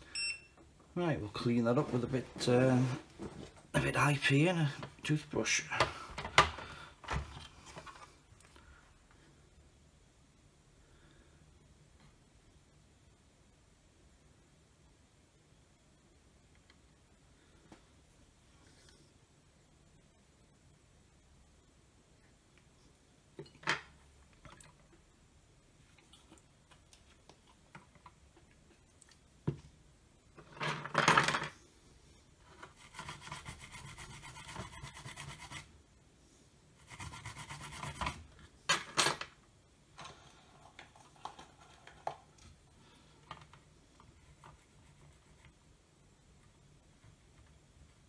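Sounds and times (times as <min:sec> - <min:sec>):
toothbrush scrubbing circuit board: 0:32.7 - 0:35.7, 0:36.8 - 0:38.1.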